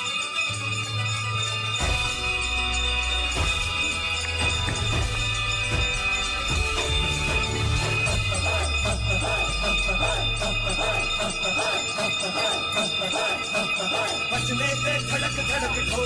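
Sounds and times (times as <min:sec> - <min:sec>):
devotional music: 0:00.0 - 0:16.0
hand bells ringing: 0:00.0 - 0:16.0.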